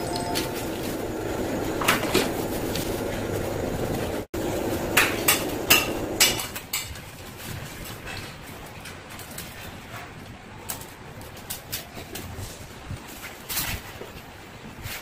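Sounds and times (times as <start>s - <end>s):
steady background noise: 0.0s - 15.0s.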